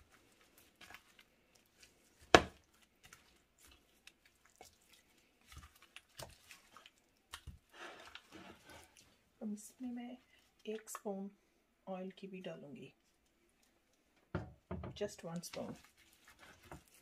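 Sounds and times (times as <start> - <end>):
raw meat squishing wetly: 0.0 - 9.5, 15.3 - 17.0.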